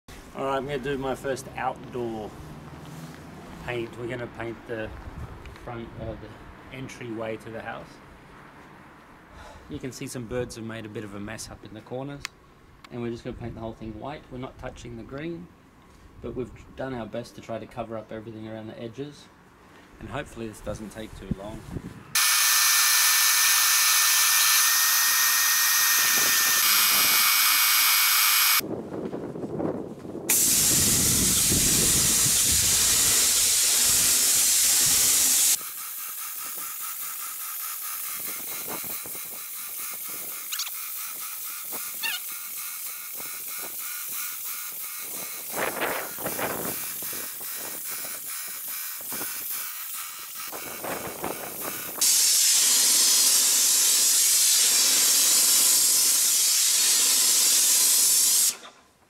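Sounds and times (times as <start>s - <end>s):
paint sprayer hissing: 22.2s - 28.6s, 30.3s - 58.7s.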